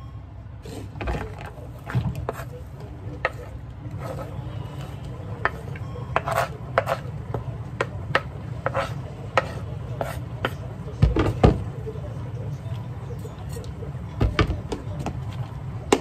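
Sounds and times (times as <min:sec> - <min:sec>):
knife scraping cutting board: 0:00.6 - 0:02.6, 0:03.2 - 0:07.1, 0:08.1 - 0:10.6.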